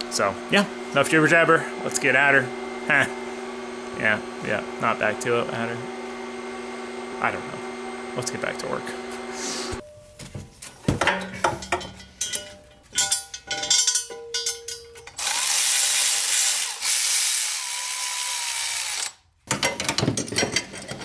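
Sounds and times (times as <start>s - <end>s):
metal tools clanking: 10.7s - 15.4s, 19.5s - 21.0s
ratchet clicking: 15.0s - 19.2s.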